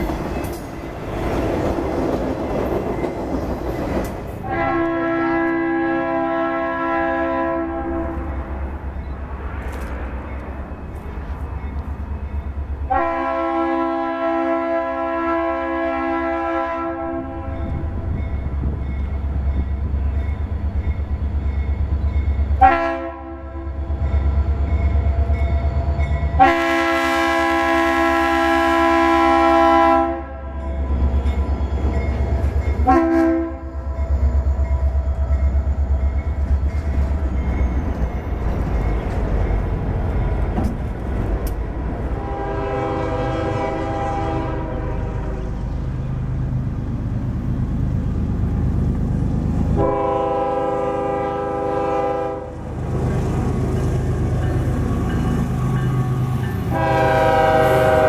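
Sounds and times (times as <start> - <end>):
diesel locomotive rumble: 0.0 - 58.0
train air horn blasts: 4.4 - 8.4, 12.9 - 17.9, 22.6 - 24.0, 26.3 - 30.6, 32.8 - 34.2, 42.1 - 45.6, 49.7 - 52.6, 54.9 - 58.0.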